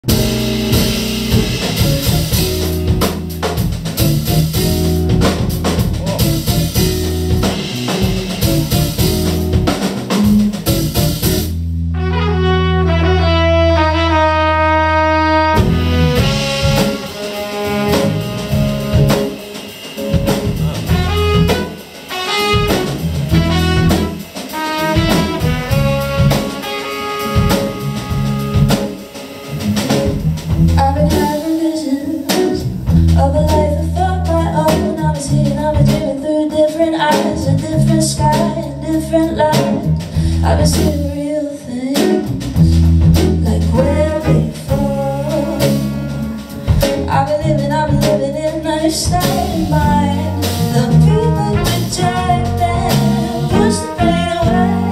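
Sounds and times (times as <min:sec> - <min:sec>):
bass guitar: 0:00.0 - 0:54.9
drum kit: 0:00.0 - 0:54.9
electric guitar: 0:00.0 - 0:54.9
trumpet: 0:11.9 - 0:30.2, 0:44.2 - 0:47.1, 0:50.4 - 0:54.9
saxophone: 0:11.9 - 0:31.5, 0:43.8 - 0:48.0, 0:49.1 - 0:54.9.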